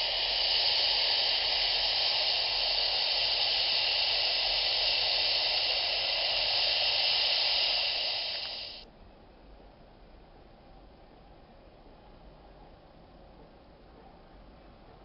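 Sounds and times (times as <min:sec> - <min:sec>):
aircraft engines rushing hiss: 0:00.0 - 0:08.9.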